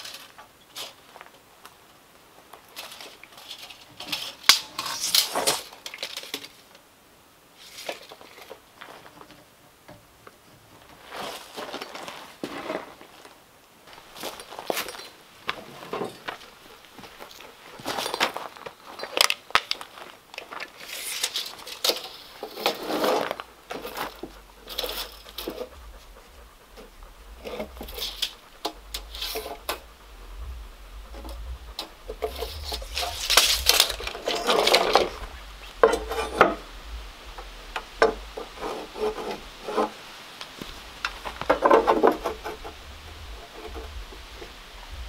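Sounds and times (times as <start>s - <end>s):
light clicks and rubs: 14.0s - 44.6s
wooden boards knocking and scraping: 26.8s - 40.0s, 40.7s - 44.6s.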